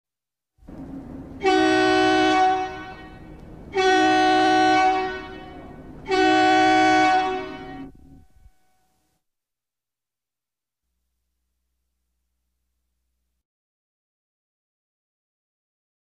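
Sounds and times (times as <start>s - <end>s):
low rumble: 0.6s - 6.4s, 7.0s - 8.6s
multi-tone air horn blasts: 0.8s - 9.0s.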